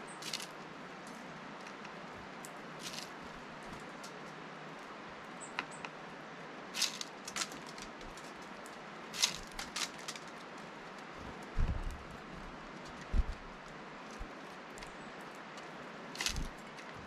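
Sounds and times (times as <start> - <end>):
background hiss: 0.0 - 17.0
seeds rattling: 0.1 - 0.6, 2.8 - 3.3, 6.8 - 14.9, 16.2 - 17.0
bird pecking plastic tray: 6.8 - 8.3.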